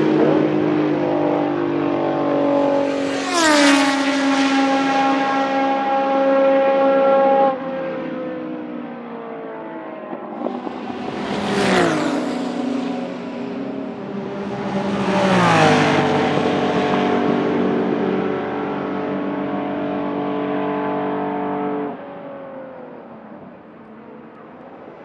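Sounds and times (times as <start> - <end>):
racing cars passing at speed: 0.0 - 25.0
steady high engine note: 10.5 - 22.2.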